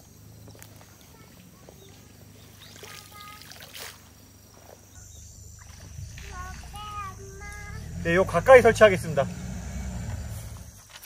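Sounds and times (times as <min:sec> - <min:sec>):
water sloshing around wader: 0:00.5 - 0:09.2
water swish: 0:02.4 - 0:04.3.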